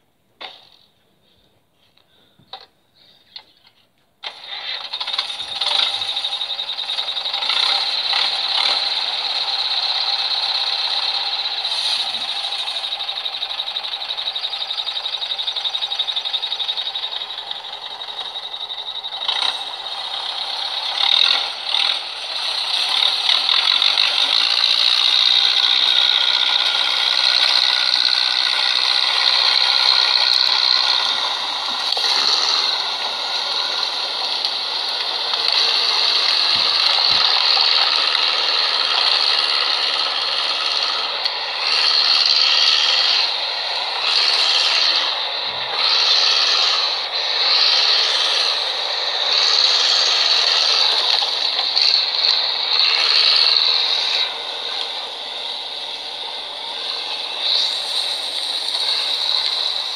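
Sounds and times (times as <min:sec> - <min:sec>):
tractor diesel engine rattling: 0:04.2 - 0:59.9.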